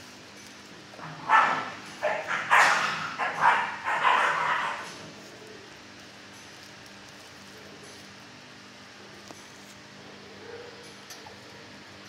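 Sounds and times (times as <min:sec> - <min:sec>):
dog barking: 0:01.0 - 0:05.0, 0:10.3 - 0:11.8.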